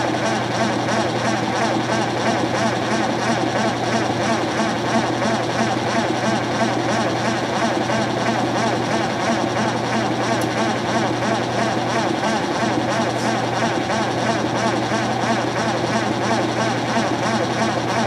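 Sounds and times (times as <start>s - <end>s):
washing machine spinning: 0.0s - 18.0s.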